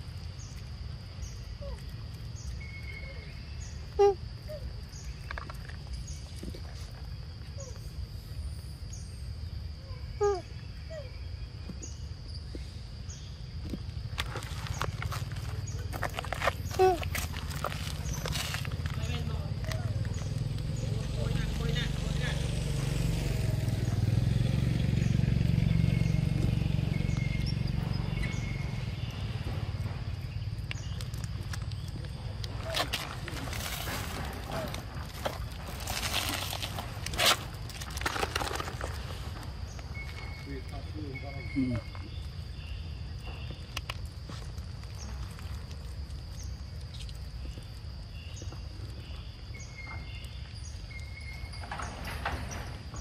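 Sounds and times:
deep steady rumble: 0:10.7 - 0:46.8
vehicle engine humming: 0:14.7 - 0:43.6.

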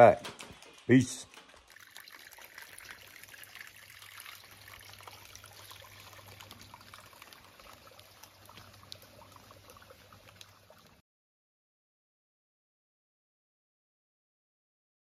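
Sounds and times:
stream trickling over rocks: 0:00.0 - 0:11.0.

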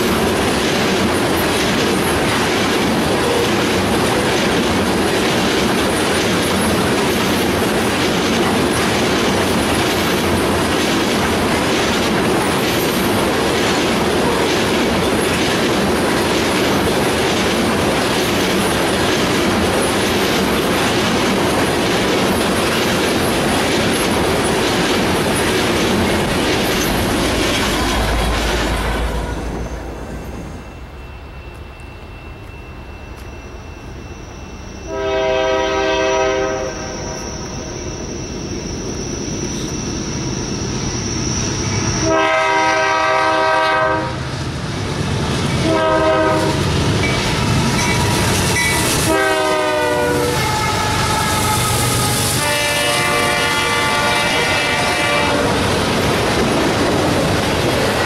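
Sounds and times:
freight cars rumbling and clattering: 0:00.0 - 0:30.9
locomotive air horn blasts: 0:34.9 - 0:37.3, 0:42.0 - 0:44.2, 0:45.6 - 0:46.6, 0:48.9 - 0:55.6.

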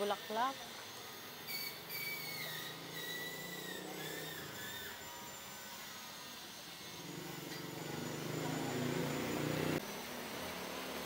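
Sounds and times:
faint high wavering tones: 0:00.0 - 0:11.0
steady background noise: 0:00.0 - 0:11.0
vehicle engine humming: 0:07.0 - 0:11.0.

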